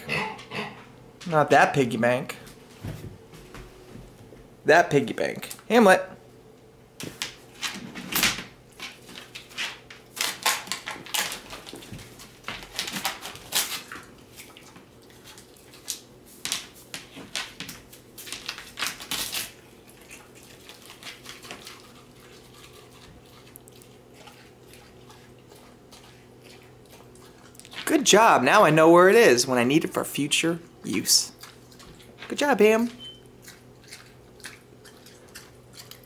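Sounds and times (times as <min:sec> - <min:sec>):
pig eating paper on floor: 0:08.7 - 0:28.2, 0:30.8 - 0:36.0.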